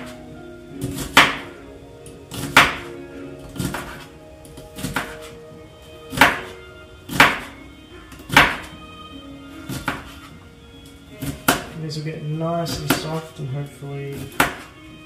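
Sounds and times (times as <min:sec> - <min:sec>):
lo-fi background music: 0:00.0 - 0:15.0
knife chopping on cutting board: 0:00.8 - 0:01.5, 0:02.3 - 0:02.9, 0:03.6 - 0:04.1, 0:04.8 - 0:05.3, 0:06.1 - 0:06.5, 0:07.1 - 0:07.5, 0:08.3 - 0:08.7, 0:09.7 - 0:10.2, 0:11.2 - 0:11.8, 0:14.1 - 0:14.7.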